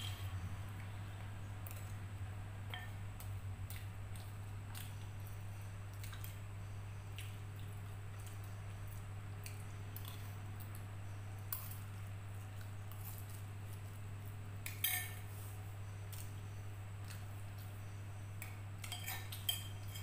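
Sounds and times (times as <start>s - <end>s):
soft eating sounds: 0.0s - 20.0s
steady low hum: 0.0s - 20.0s
cutlery clinking on ceramic plate: 14.7s - 15.2s, 18.8s - 20.0s.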